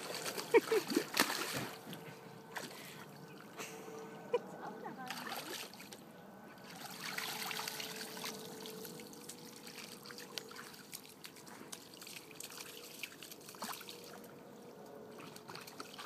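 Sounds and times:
dog splashing through puddle: 0.0 - 2.0, 5.1 - 6.0, 6.6 - 14.3, 15.1 - 16.0.

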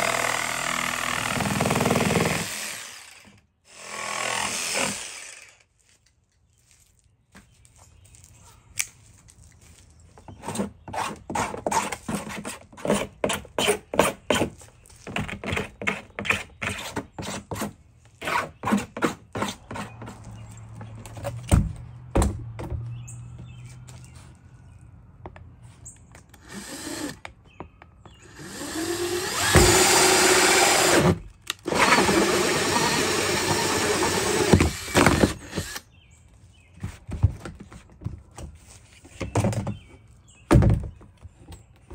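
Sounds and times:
drill hole saw cutting plastic: 28.2 - 35.8.

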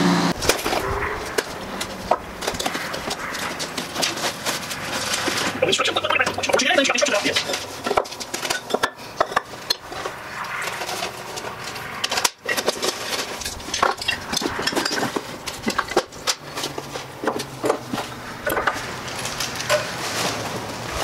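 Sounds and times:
packing paper rustling: 0.4 - 8.5, 15.1 - 21.0
metal tools clinking on wood: 6.2 - 20.3.

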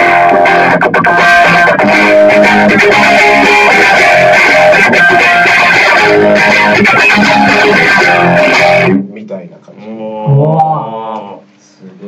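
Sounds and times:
electric guitar chords strummed: 0.0 - 9.0.

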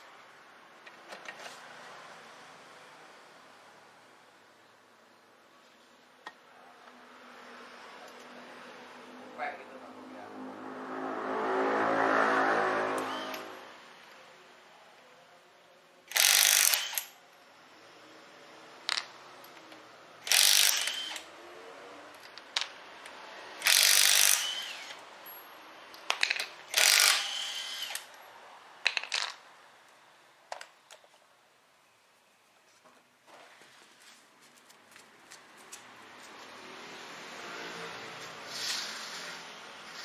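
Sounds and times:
impact wrench bursts: 13.0 - 13.5, 16.1 - 17.2, 20.2 - 21.3, 23.6 - 25.0, 26.6 - 28.2.

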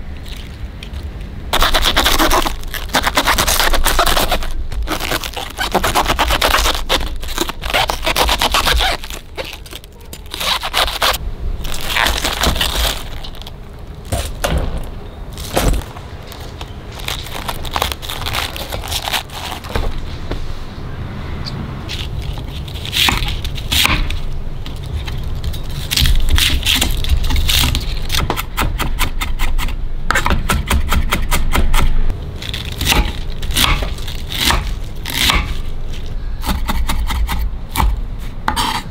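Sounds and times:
knife scraping cabbage: 1.5 - 13.5, 16.3 - 20.1, 21.9 - 31.8, 32.4 - 38.9
knife chopping on wooden board: 32.8 - 35.6, 36.4 - 38.8.

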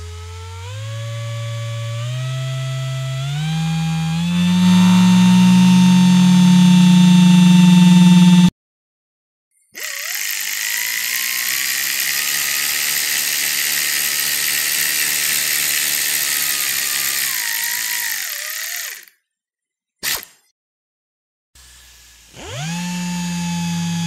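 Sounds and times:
electric power tool motor: 0.0 - 8.5, 9.7 - 19.2, 20.0 - 20.4, 21.6 - 24.0
humming sound: 0.0 - 8.5.

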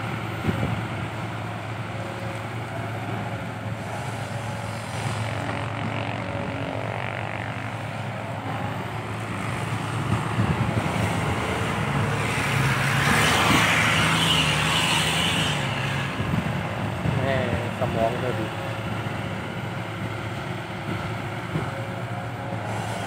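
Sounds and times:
diesel truck engine running: 0.0 - 23.0.

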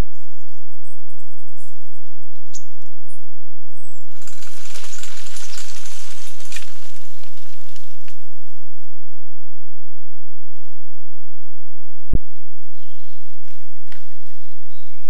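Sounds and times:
small birds chirping: 3.8 - 8.5
animal running through dry leaves: 4.1 - 8.9.

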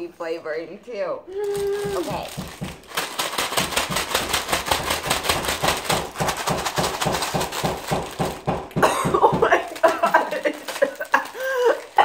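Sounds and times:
snack bag shaken with rattling: 1.4 - 12.0
person coughing: 8.8 - 10.5
laughter: 8.9 - 12.0.

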